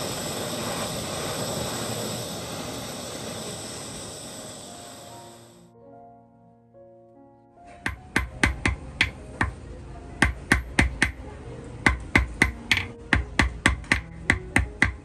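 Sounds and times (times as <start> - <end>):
hammer tapping on metal anvil: 7.7 - 9.6, 10.2 - 11.2, 11.8 - 15.0.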